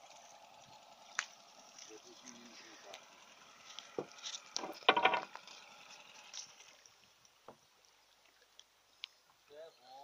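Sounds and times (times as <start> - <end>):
wooden pole knocking on canoe: 4.6 - 5.3.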